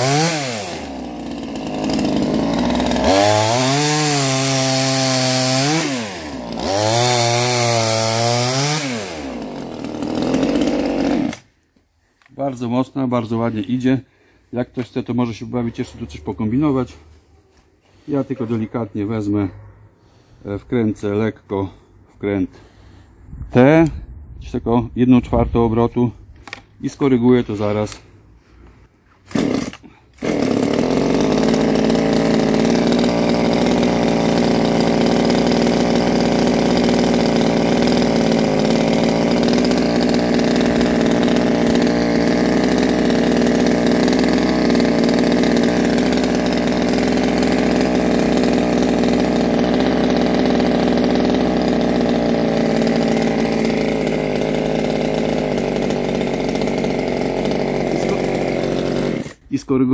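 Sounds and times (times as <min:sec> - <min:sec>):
chainsaw engine running: 0:00.0 - 0:11.5, 0:29.3 - 0:59.5.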